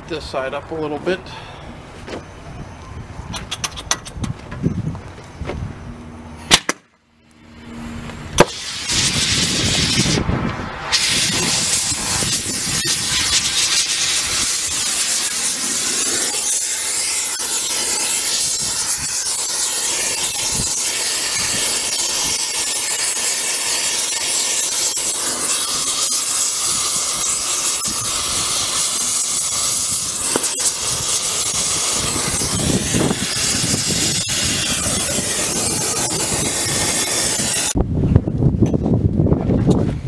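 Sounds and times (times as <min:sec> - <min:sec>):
gas torch flame hissing: 0:08.4 - 0:10.2, 0:10.8 - 0:37.8.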